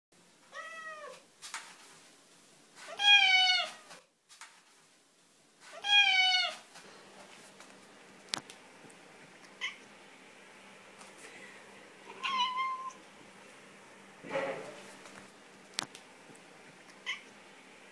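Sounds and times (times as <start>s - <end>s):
cat meowing: 0.5s - 1.2s, 2.9s - 4.0s, 5.7s - 6.6s, 12.1s - 13.0s, 17.0s - 17.3s.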